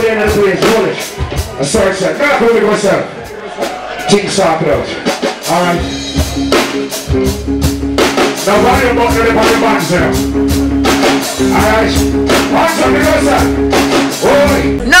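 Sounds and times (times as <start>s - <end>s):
reggae band playing: 0.0s - 15.0s
man singing: 8.5s - 10.2s, 11.4s - 15.0s.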